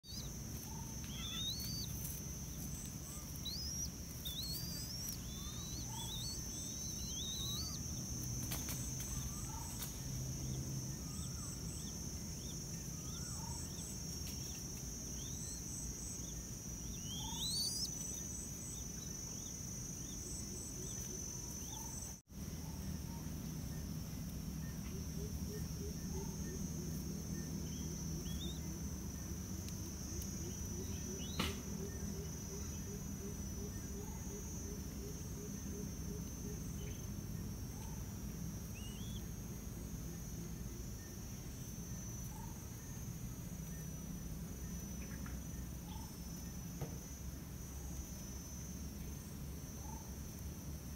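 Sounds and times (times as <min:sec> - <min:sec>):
high insect drone: 0:00.0 - 0:50.9
small birds chirping: 0:00.0 - 0:50.9.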